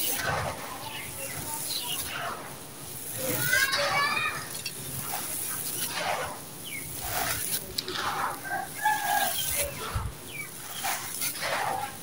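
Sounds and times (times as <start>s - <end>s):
sand trickling through hands: 0.0s - 12.0s
chicken calling: 8.4s - 9.9s.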